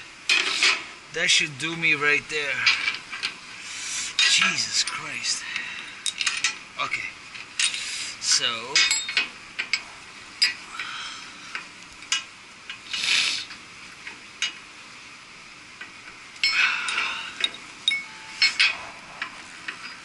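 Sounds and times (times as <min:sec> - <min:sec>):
steel shackles clinking: 0:08.6 - 0:09.8, 0:15.8 - 0:20.0.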